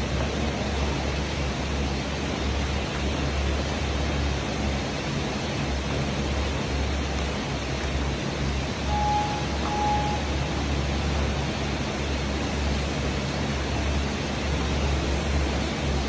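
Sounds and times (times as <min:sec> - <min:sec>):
steady rushing noise: 0:00.0 - 0:16.0
timer beeps: 0:08.9 - 0:10.6.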